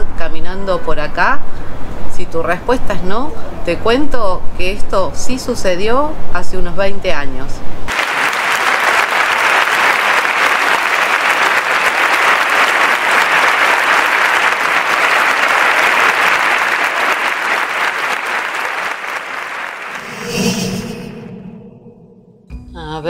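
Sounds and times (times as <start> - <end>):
crowd clapping: 7.9 - 20.1.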